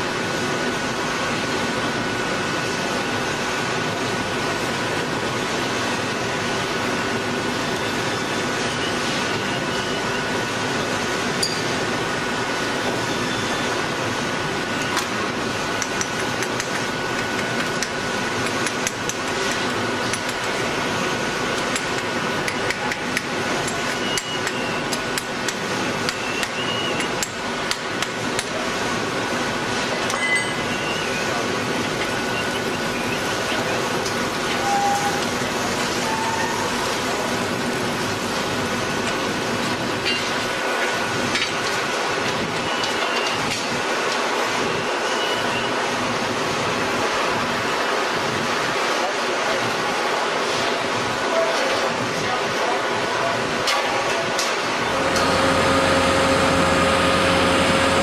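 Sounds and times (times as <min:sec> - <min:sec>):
coiling machine running: 0:54.7 - 0:58.0.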